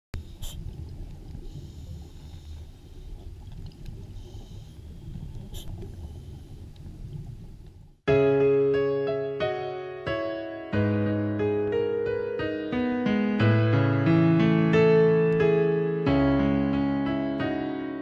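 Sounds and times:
low underwater rumble: 0.2s - 8.0s
hisses: 4.1s - 6.8s
piano music: 8.1s - 18.0s.

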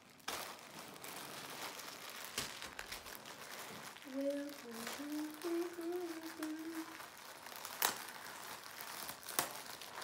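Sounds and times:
plastic bag crinkling: 0.0s - 10.0s
woman humming: 4.1s - 7.0s.

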